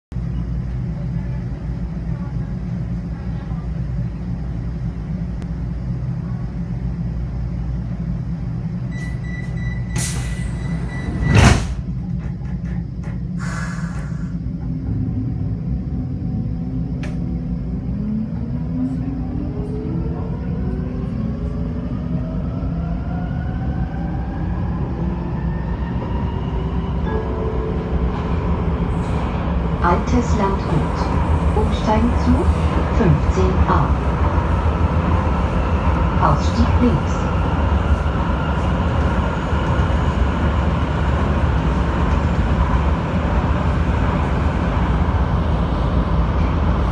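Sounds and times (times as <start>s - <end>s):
low rumble of train: 0.0s - 46.9s
train warning tone: 8.8s - 11.6s
sliding doors slamming shut: 10.0s - 11.9s.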